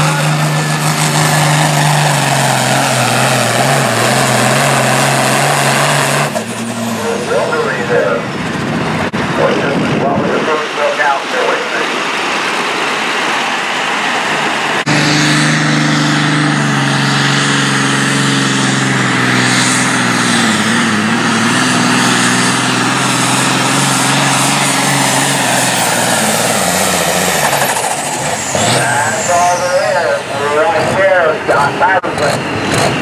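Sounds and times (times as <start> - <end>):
tractor engine running under load: 14.8 - 28.6.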